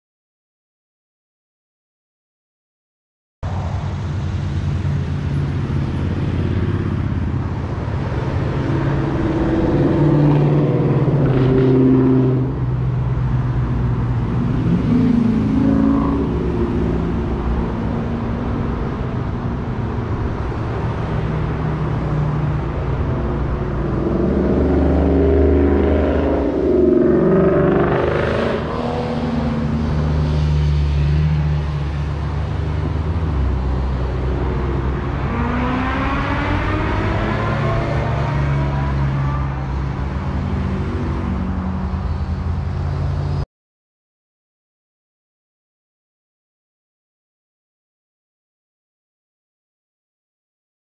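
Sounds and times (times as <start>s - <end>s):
steady low traffic rumble: 3.4s - 43.4s
vehicles passing: 3.4s - 43.4s.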